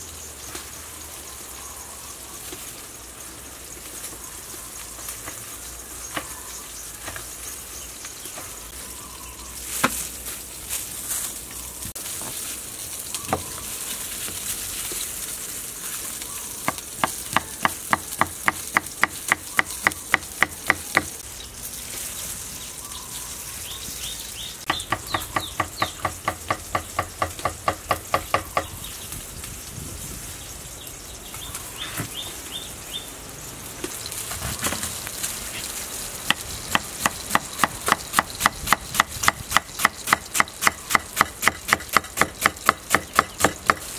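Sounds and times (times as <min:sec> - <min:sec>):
fish sizzling in a frying pan: 0:00.0 - 0:43.9.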